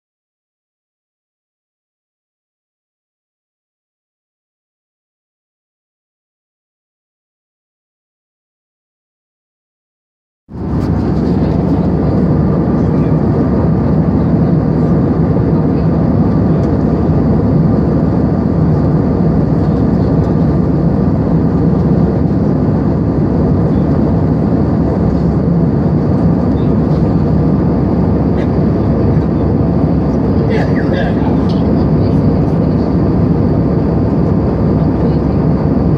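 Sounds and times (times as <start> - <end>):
jet engines droning: 10.5 - 35.9
constant low hum: 10.6 - 35.9.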